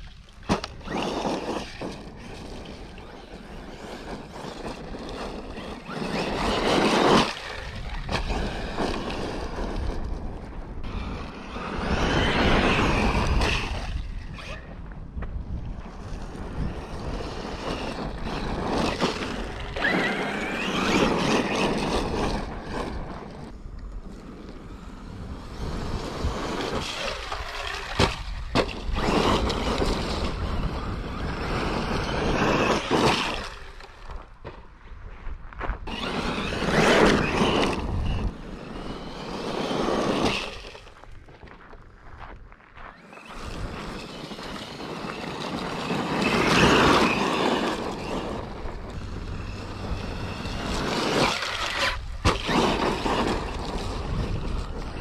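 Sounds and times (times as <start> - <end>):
rc truck motor whine: 0.0 - 34.6, 35.8 - 41.6, 42.8 - 55.0
wind rumble on microphone: 0.0 - 55.0
tyres churning gravel: 15.8 - 55.0.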